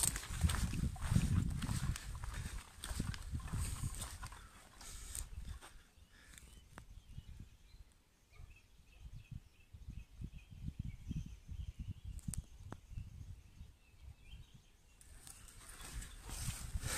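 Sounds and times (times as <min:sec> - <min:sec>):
low rumbling on microphone: 0:00.0 - 0:05.6.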